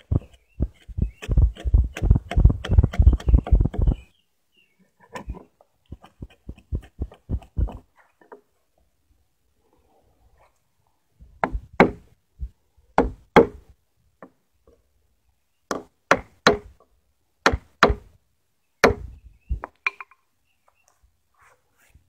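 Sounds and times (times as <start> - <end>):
chisel chopping into wood: 11.4 - 12.0, 13.0 - 13.6, 15.7 - 16.7, 17.4 - 18.1, 18.8 - 19.1.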